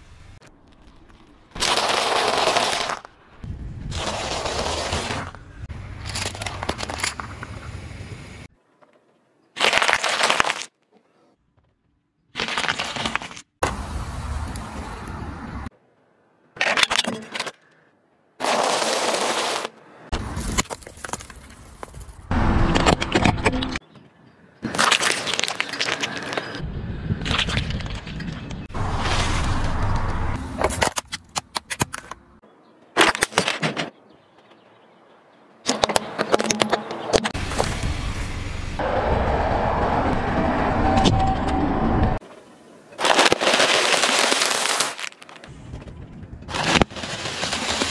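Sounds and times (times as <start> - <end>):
tyre crunching plastic toys: 0.6 - 3.1, 9.6 - 10.8, 18.4 - 22.3, 24.6 - 26.6, 43.0 - 45.5, 46.5 - 47.9
tyre crushing pea pods: 9.6 - 10.9, 24.6 - 26.6, 43.0 - 45.5.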